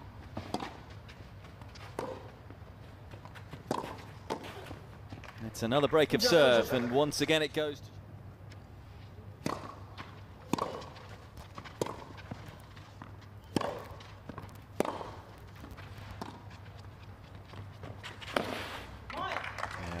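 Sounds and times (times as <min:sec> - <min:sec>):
rackets striking tennis ball: 0:03.2 - 0:05.4, 0:09.4 - 0:19.6.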